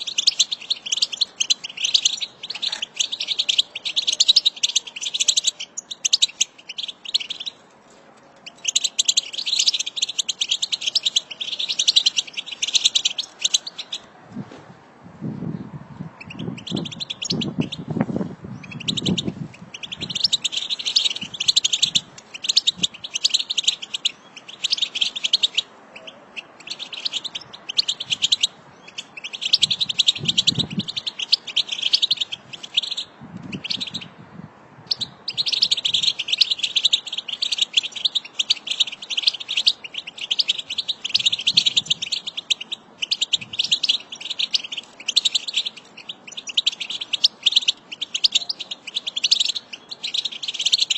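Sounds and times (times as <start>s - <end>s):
finches twittering: 0.0s - 7.6s, 16.2s - 17.9s, 18.6s - 34.1s, 34.9s - 50.9s.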